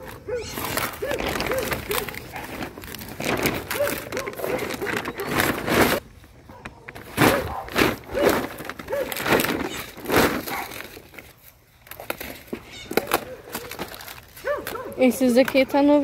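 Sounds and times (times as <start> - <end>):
leafy vegetables rustling: 0.0 - 16.0.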